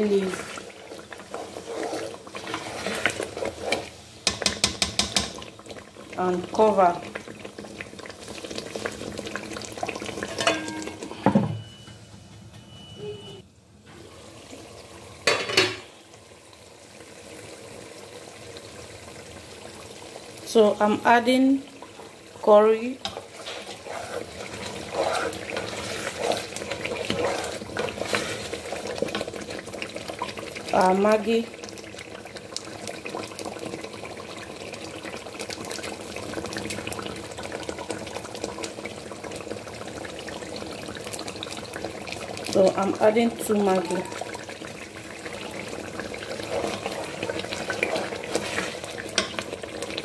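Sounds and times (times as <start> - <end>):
stew sizzling and bubbling: 0.0 - 11.9, 12.8 - 50.0
spatula scraping a pot: 0.2 - 4.0, 23.0 - 29.4, 46.2 - 49.4.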